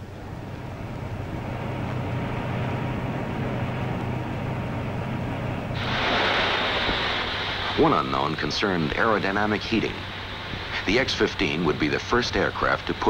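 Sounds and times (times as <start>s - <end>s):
low machinery hum: 0.0s - 13.0s
rush of air: 5.4s - 10.9s
hiss: 5.8s - 13.0s.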